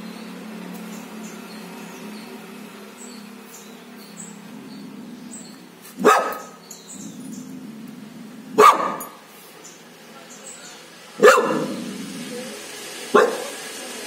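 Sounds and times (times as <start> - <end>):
dog barking: 6.0 - 6.6, 8.5 - 9.2, 11.2 - 11.9, 13.1 - 13.6.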